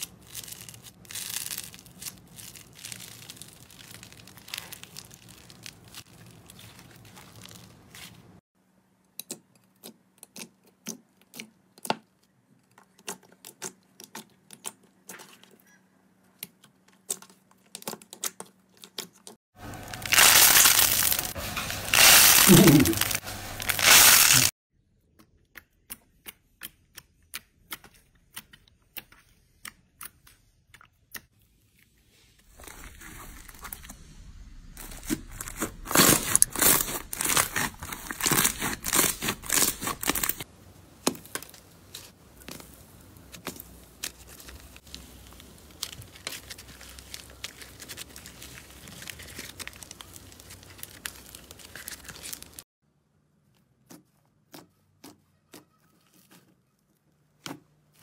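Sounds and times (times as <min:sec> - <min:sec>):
slime crackling and popping: 0:00.0 - 0:07.8, 0:19.7 - 0:24.5, 0:32.5 - 0:41.5, 0:43.3 - 0:52.6
slime squeezed by hand: 0:19.9 - 0:24.5.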